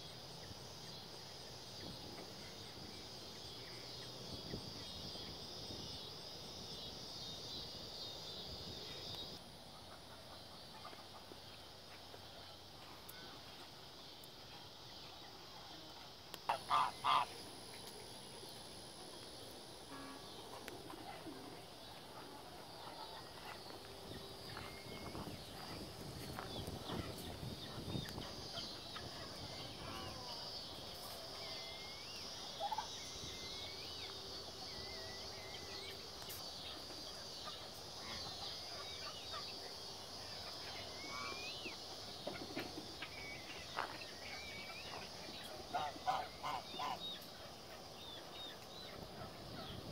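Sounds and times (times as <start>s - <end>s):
poultry calling: 16.5s - 17.4s, 44.6s - 47.7s.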